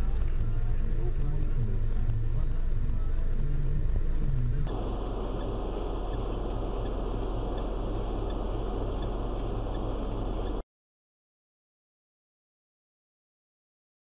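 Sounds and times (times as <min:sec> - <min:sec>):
car engine and road noise: 0:00.0 - 0:10.6.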